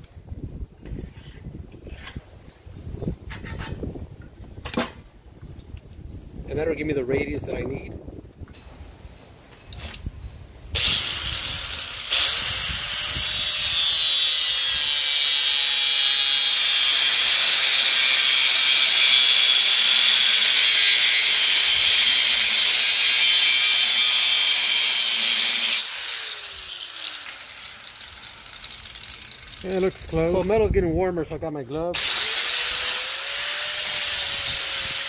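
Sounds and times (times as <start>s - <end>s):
angle grinder cutting sheet steel: 10.8s - 30.4s, 32.0s - 35.0s.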